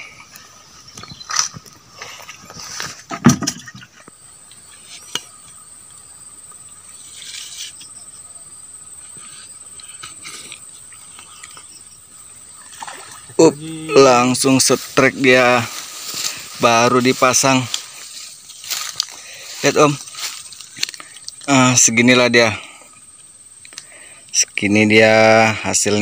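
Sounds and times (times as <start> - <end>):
high-pitched insect drone: 4.6 - 26.0.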